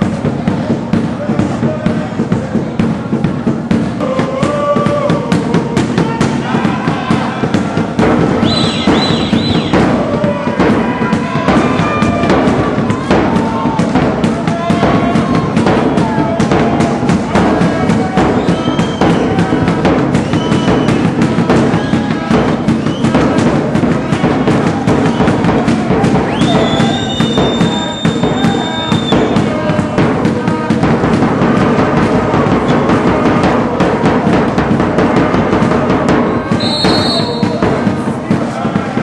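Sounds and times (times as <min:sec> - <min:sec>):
music with dense drum beat: 0:00.0 - 0:39.0.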